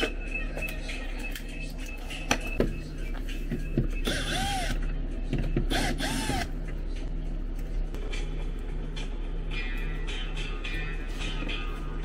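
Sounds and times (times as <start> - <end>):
cordless drill motor spinning: 4.0 - 4.8, 5.7 - 6.5.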